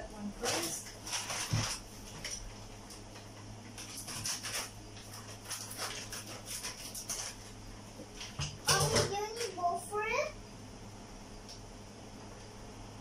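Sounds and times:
pot bubbling and crackling: 0.0 - 9.6
steady low hum: 0.0 - 13.0.

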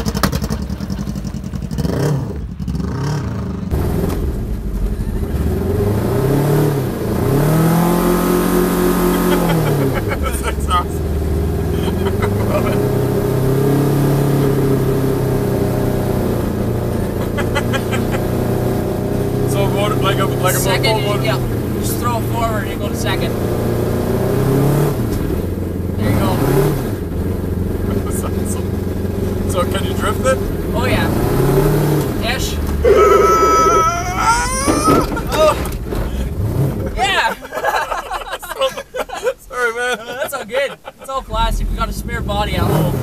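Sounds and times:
motorcycle engine running: 0.0 - 5.0
people laughing: 0.4 - 1.3, 9.0 - 11.0, 11.6 - 13.0, 16.9 - 18.5, 32.8 - 41.2
car engine running: 3.6 - 40.2
man squealing: 32.8 - 35.6.

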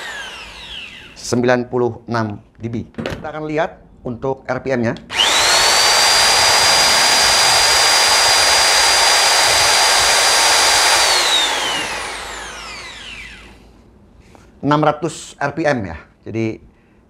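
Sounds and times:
electric mixer motor whine: 0.0 - 1.3, 5.1 - 13.6.

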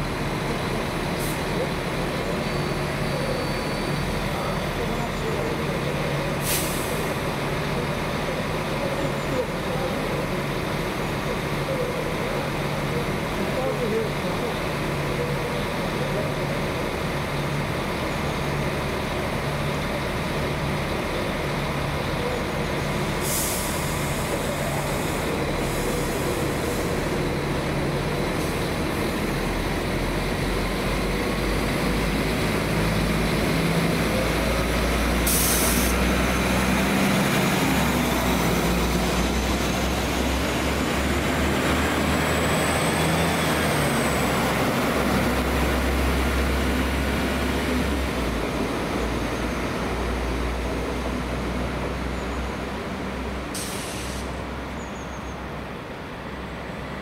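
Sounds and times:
train rumbling: 0.0 - 54.8
hisses of released air: 6.4 - 7.2, 23.2 - 27.0, 35.2 - 36.0, 53.5 - 54.4.

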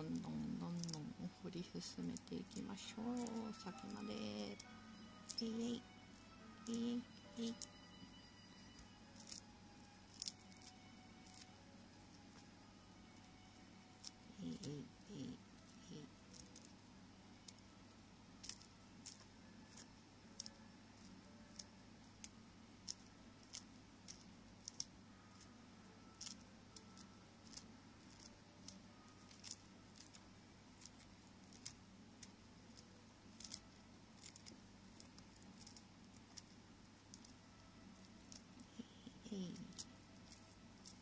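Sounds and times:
corn kernels clicking and snapping: 0.0 - 7.9, 8.7 - 11.6, 14.0 - 16.7, 17.4 - 17.7, 18.4 - 38.7, 39.4 - 41.0.

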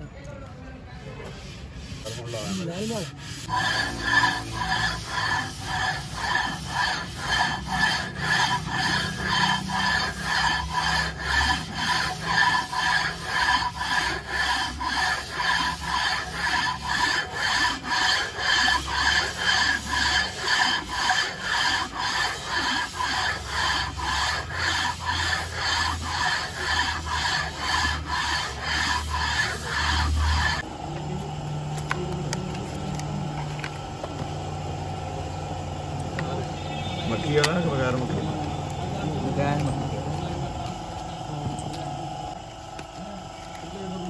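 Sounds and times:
metal rubbing on metal: 0.9 - 30.7.

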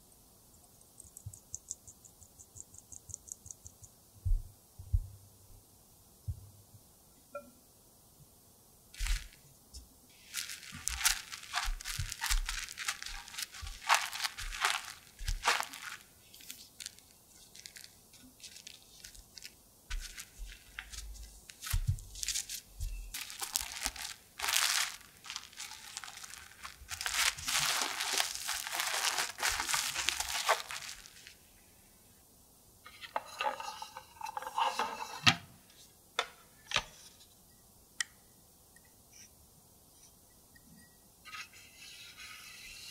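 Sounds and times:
cling film crinkling: 9.0 - 9.4, 10.1 - 31.5.

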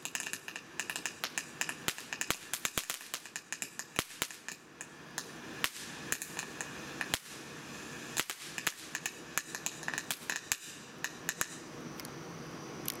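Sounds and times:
firework crackling pops: 0.0 - 12.1
firework sparks hissing: 0.0 - 12.9.

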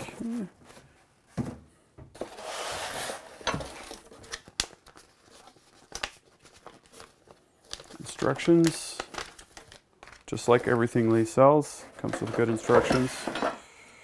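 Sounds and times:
cardboard sliding and scraping: 2.2 - 3.5
paper rustling: 2.2 - 11.2.

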